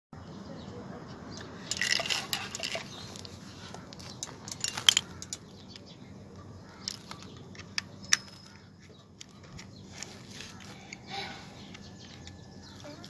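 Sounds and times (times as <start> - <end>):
metal toy car clinks: 1.4 - 3.3, 4.0 - 5.5.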